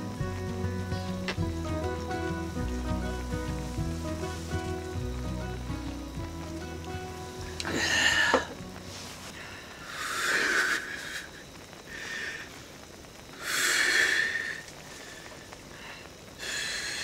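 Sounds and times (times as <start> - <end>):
breathy sighs of satisfaction: 7.6 - 8.6.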